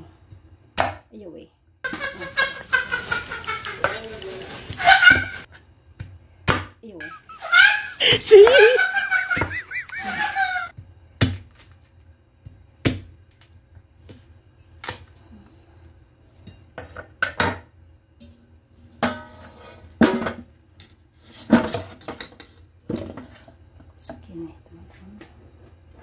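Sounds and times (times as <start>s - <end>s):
wavering voice: 7.0s - 10.7s.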